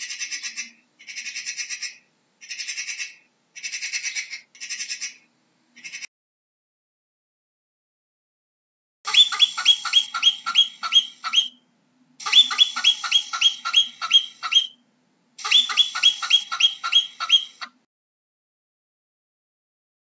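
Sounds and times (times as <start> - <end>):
marmot alarm whistles: 9.1 - 11.6, 12.2 - 14.8, 15.4 - 17.7.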